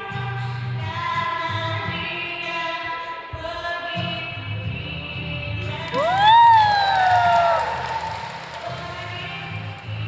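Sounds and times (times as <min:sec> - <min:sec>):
acoustic guitar: 0:00.0 - 0:10.0
woman singing: 0:00.0 - 0:10.0.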